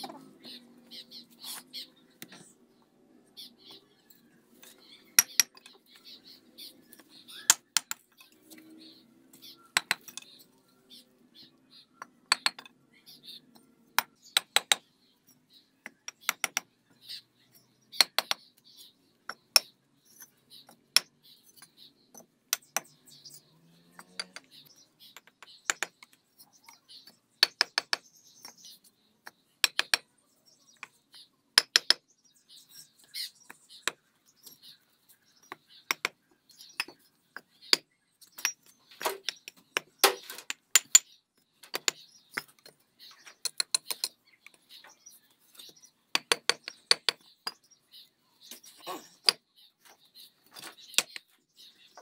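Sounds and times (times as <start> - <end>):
hammer and trowel tapping on bricks: 5.2 - 5.8, 7.4 - 8.2, 9.8 - 10.3, 12.0 - 12.8, 14.0 - 14.9, 15.8 - 16.7, 18.0 - 18.4, 19.3 - 23.0, 25.1 - 26.2, 27.0 - 30.1, 31.6 - 32.1, 35.4 - 44.2, 45.6 - 47.8.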